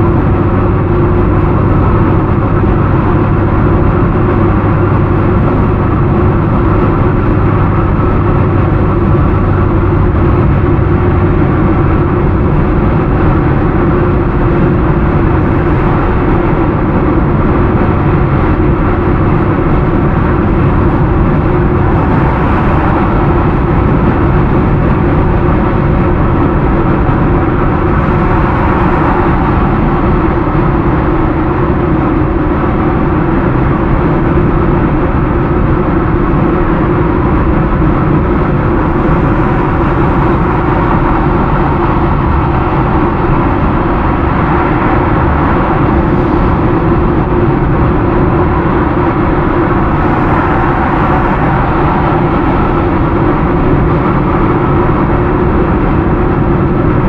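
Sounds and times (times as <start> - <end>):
car road noise from inside: 0.0 - 57.0.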